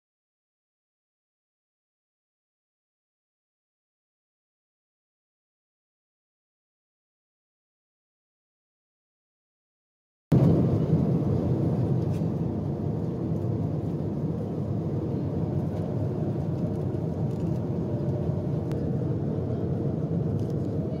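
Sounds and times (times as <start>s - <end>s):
airplane cabin drone: 10.3s - 21.0s.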